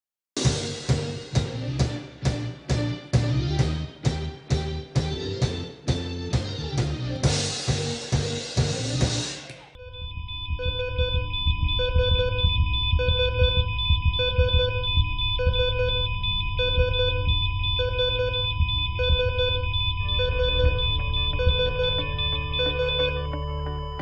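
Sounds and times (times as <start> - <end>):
music with steady drum beat: 0.4 - 9.7, 10.5 - 23.3
low rumble: 9.8 - 23.9
heart monitor beeping: 9.8 - 24.0
steady electronic hum: 9.8 - 24.0.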